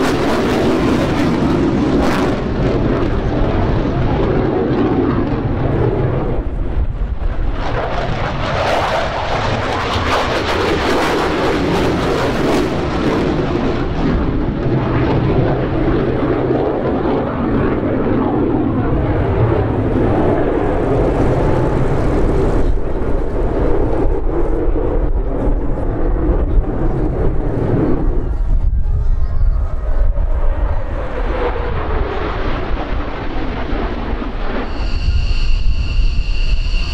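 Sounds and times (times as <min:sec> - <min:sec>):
jet engines roaring: 0:00.0 - 0:36.9.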